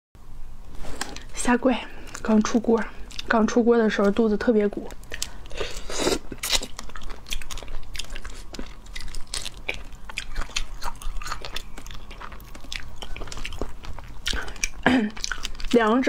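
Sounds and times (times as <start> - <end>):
chewing: 1.9 - 4.2, 4.8 - 16.0
crayfish shells cracking: 6.4 - 15.7.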